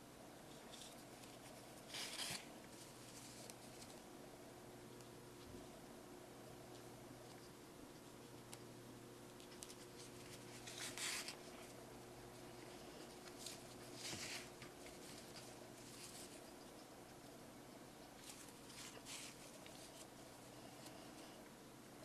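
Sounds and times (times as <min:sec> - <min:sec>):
faint steady hum: 0:00.0 - 0:22.0
yarn and fabric rustling: 0:09.8 - 0:16.6, 0:18.1 - 0:21.4.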